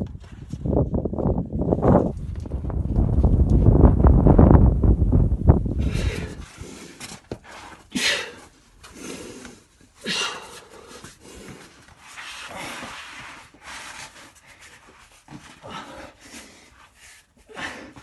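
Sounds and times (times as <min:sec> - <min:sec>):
person breathing hard: 0:05.7 - 0:13.4, 0:15.5 - 0:18.0.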